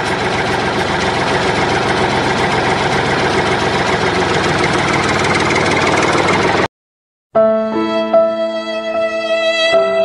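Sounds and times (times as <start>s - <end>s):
tractor engine idling: 0.0s - 6.7s.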